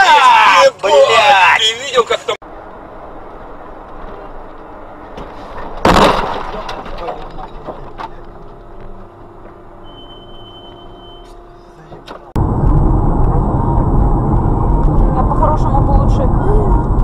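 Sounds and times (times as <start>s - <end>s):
road and engine noise: 0.0s - 17.0s
car crash with breaking glass: 5.4s - 8.2s.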